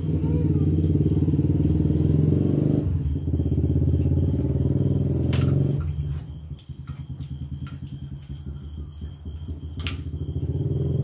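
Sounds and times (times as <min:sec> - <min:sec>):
engine pulsing rumble: 0:00.0 - 0:11.0.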